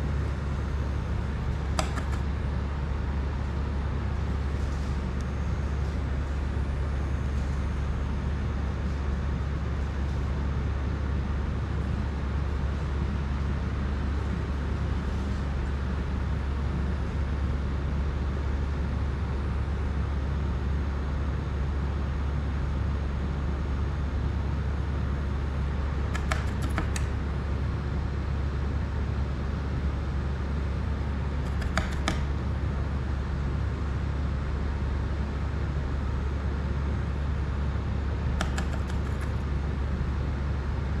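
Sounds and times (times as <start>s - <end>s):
low hum and hiss: 0.0s - 41.0s
small clicks: 1.8s - 2.3s, 26.1s - 27.1s, 31.4s - 32.3s, 38.4s - 39.4s.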